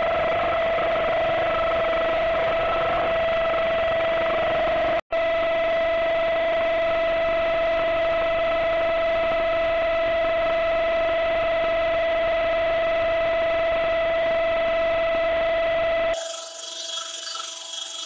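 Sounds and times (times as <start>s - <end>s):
milling cutter whine: 0.0s - 5.0s, 15.8s - 18.0s.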